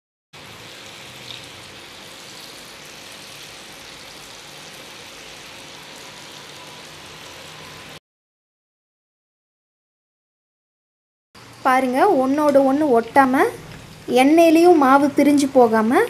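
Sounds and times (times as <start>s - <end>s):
potato strips deep-frying in oil: 0.4s - 8.0s, 11.4s - 16.0s.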